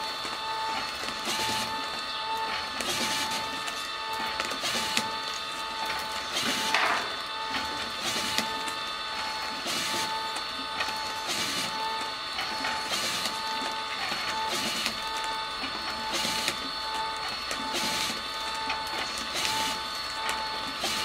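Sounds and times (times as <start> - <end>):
machine mechanical whine: 0.0 - 21.0.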